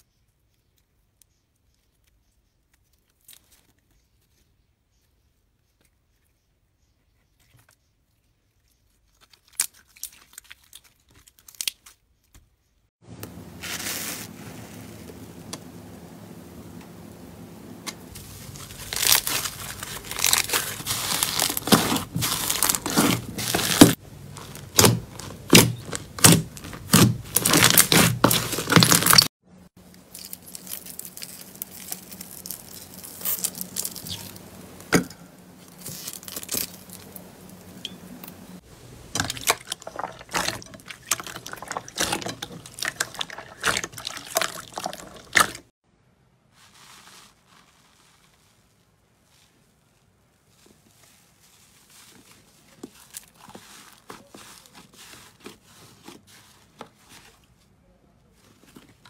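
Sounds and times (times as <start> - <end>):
foam bead slime crunching: 8.9 - 12.0, 13.5 - 15.1, 18.1 - 34.8, 35.6 - 37.8, 38.5 - 45.6, 46.5 - 57.5
bubbly slime crackling: 18.1 - 34.9, 35.6 - 37.9, 38.5 - 45.7, 46.6 - 57.3.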